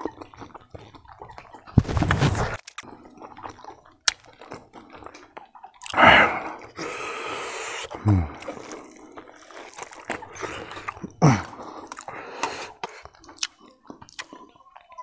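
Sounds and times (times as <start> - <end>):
wet chewing and lip smacks: 0.0 - 1.8, 2.5 - 15.0
breathy noise: 5.8 - 13.4.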